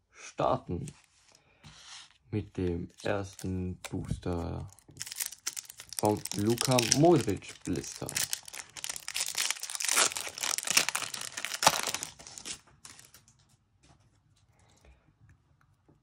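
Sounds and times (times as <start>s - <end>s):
foil pack tearing and crinkling: 4.7s - 13.2s.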